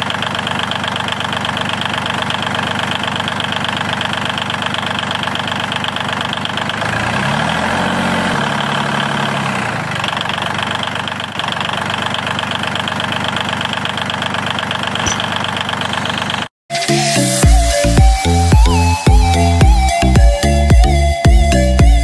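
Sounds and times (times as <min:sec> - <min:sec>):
small motor rattling: 0:00.0 - 0:16.5.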